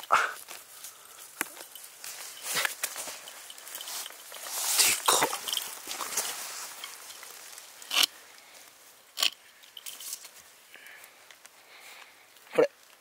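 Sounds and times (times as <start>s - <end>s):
knife scraping in soil: 1.6s - 8.2s.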